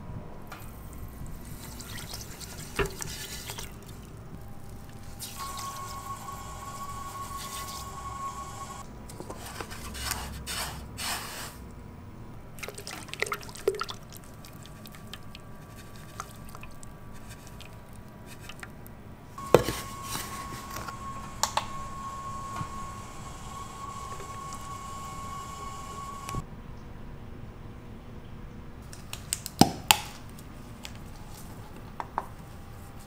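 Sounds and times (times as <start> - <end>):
faint high hum: 0.0 - 28.9
liquid pouring and sloshing: 0.6 - 6.1, 12.5 - 18.9.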